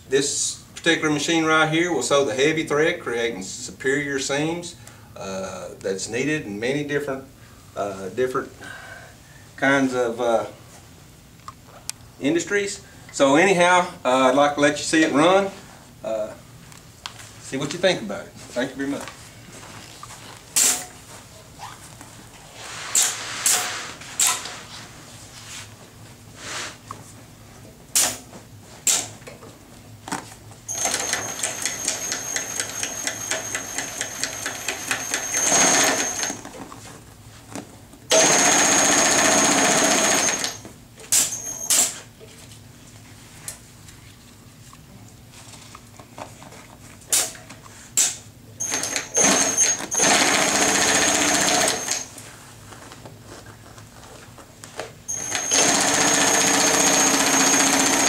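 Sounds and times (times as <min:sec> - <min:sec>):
sewing machine stitching: 0:30.7 - 0:36.4, 0:38.1 - 0:40.6, 0:48.6 - 0:52.1, 0:55.1 - 0:58.0.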